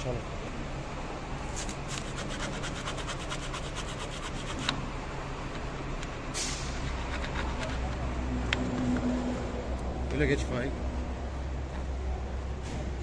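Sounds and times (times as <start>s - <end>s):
hand tool scraping foam panel: 6.8s - 8.0s.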